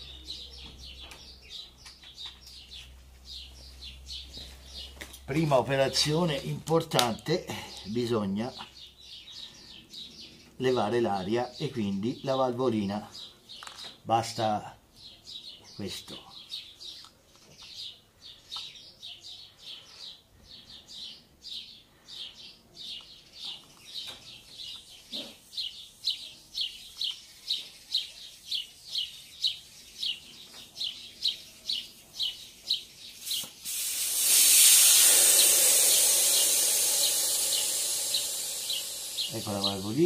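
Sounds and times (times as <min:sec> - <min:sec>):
high bird chirp: 0:00.0 - 0:40.0
air hissing out of a tyre: 0:33.2 - 0:40.0
valve click: 0:33.3 - 0:39.4.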